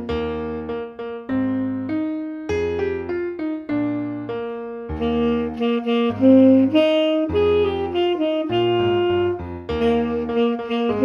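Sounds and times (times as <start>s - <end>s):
piano chords: 0.0s - 11.0s
tenor saxophone melody: 4.9s - 11.0s.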